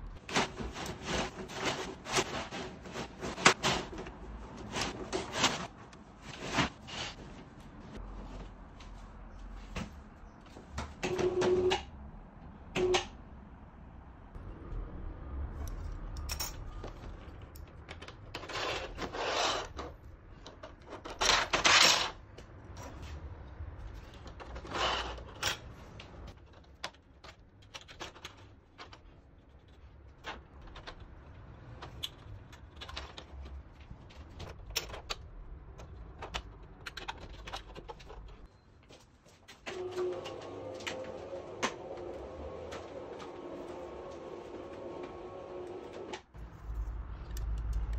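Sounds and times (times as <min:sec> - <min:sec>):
metal scraping rasps: 0:18.4 - 0:19.9.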